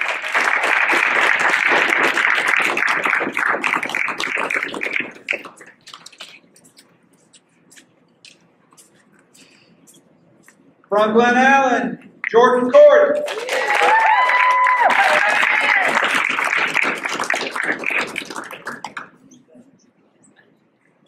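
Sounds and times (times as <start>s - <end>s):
audience applauding: 0.0s - 5.8s, 13.2s - 19.2s.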